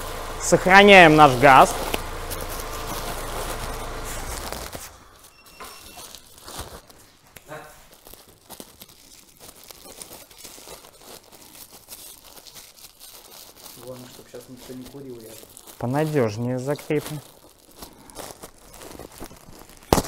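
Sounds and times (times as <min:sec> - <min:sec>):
low engine hum: 0:00.0 - 0:05.3
plastic pocket crinkling: 0:01.1 - 0:20.0.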